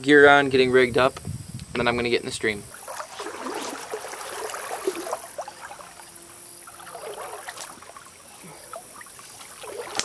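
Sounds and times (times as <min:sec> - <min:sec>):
insects trilling: 0:00.1 - 0:10.0
creek water sloshing: 0:02.4 - 0:10.0.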